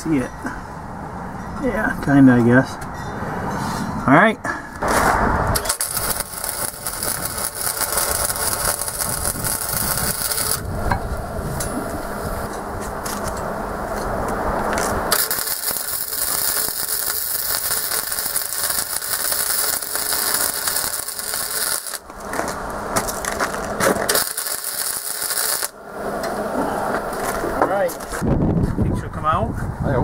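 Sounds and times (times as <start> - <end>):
welder arc crackling: 4.8 - 10.9, 14.0 - 27.5.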